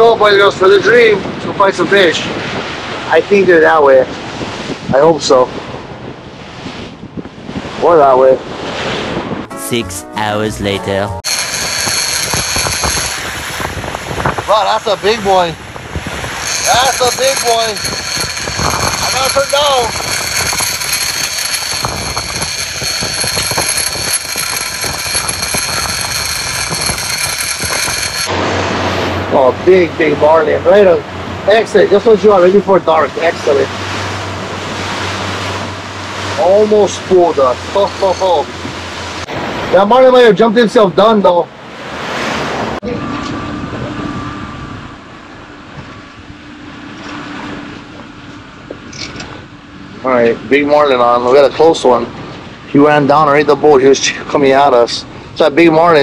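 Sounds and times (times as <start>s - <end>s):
wind: 0.0s - 56.0s
water noise: 0.5s - 53.1s
high whine: 9.4s - 39.4s, 42.8s - 52.1s
outboard motors running: 11.2s - 39.8s.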